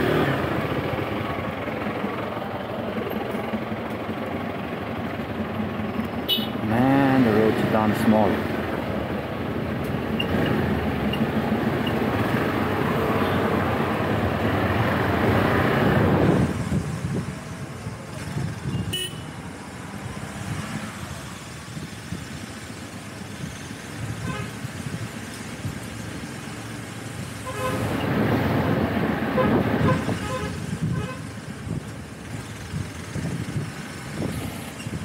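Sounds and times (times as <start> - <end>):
motorcycle engine and road noise: 0.0 - 35.0
vehicle horn toots: 6.3 - 6.6, 18.7 - 19.3, 27.4 - 27.9.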